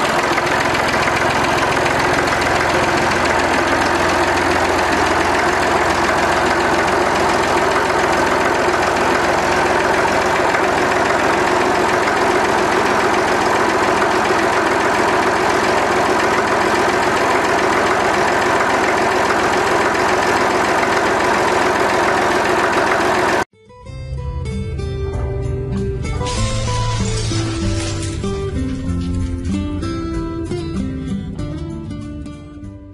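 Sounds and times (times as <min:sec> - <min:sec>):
diesel tractor engine idling: 0:00.0 - 0:23.5.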